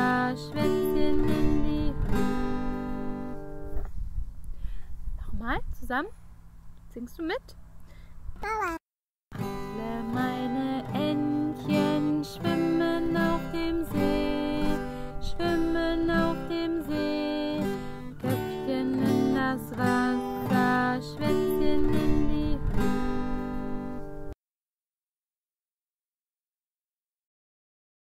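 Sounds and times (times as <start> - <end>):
acoustic guitar tune: 0.0 - 4.0, 8.4 - 24.4.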